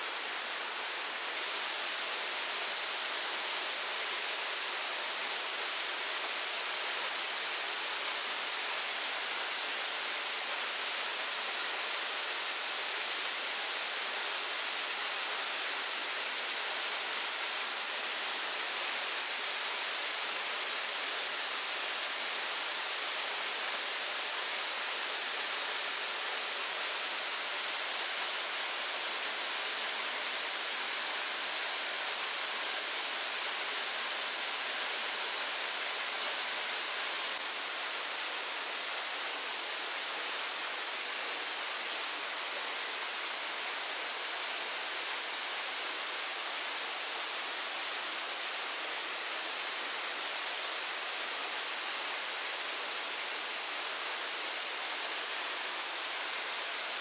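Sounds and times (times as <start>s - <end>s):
falling water hissing: 0.0s - 57.0s.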